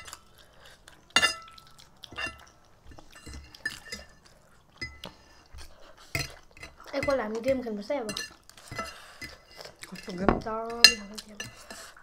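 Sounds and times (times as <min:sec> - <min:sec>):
forks clinking on ceramic plates: 0:01.2 - 0:02.5, 0:08.0 - 0:12.0.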